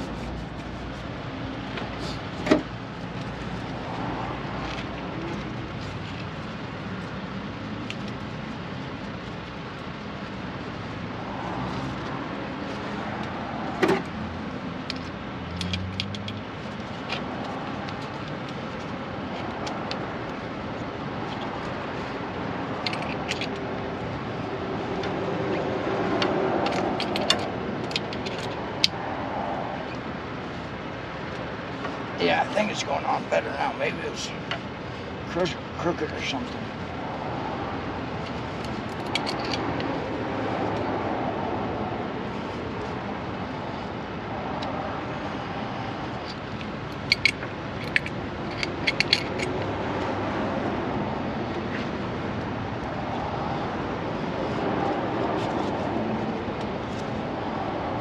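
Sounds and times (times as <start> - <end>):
steady background noise: 0.0 - 58.0
hand tool clicking on metal clamp: 47.0 - 49.6.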